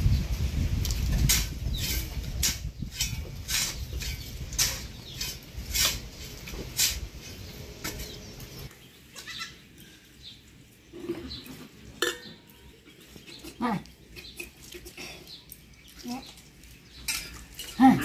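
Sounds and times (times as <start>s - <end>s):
hoe scraping dry soil: 0.6s - 9.3s.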